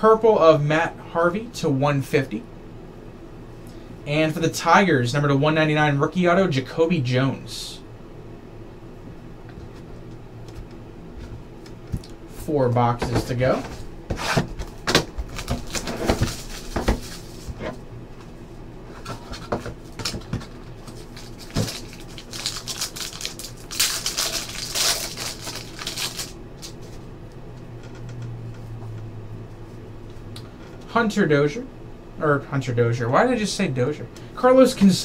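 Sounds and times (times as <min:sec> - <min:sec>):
foil wrapper crinkling and tearing: 0:15.3 - 0:17.5, 0:20.0 - 0:27.0.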